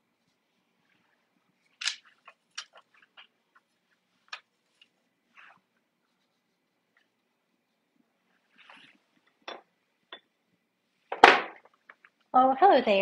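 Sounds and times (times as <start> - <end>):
brush scrubbing: 0.0 - 9.2.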